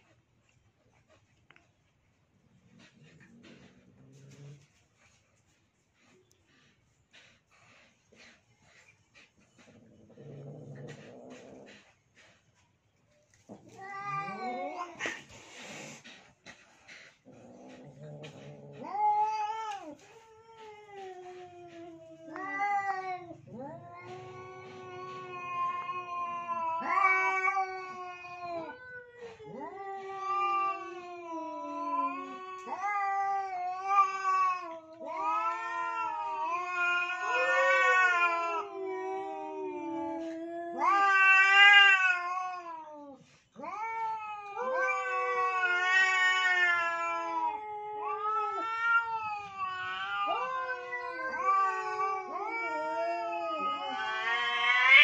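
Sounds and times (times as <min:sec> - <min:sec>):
cats yowling: 0:13.3 - 0:55.0.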